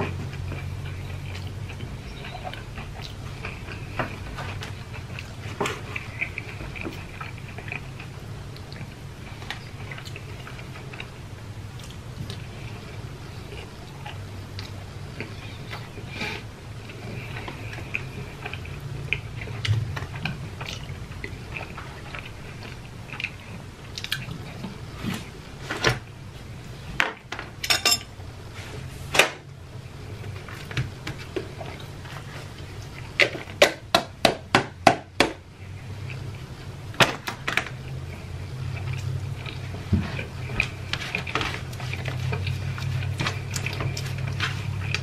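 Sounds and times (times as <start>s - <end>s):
low hum: 0.0s - 27.0s
chewing and mouth smacks: 0.1s - 12.5s, 13.5s - 16.0s, 16.8s - 24.8s, 37.8s - 45.0s.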